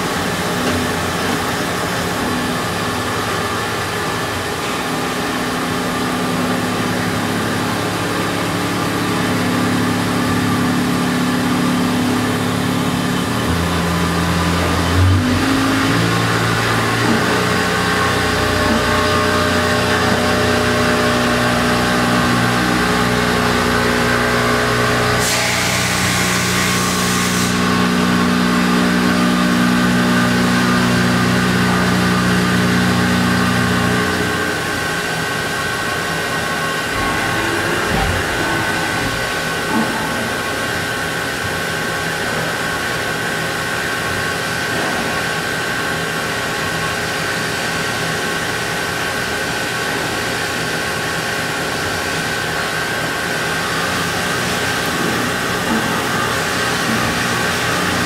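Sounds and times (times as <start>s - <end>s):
milling machine drone: 0.0s - 26.9s, 27.6s - 42.8s.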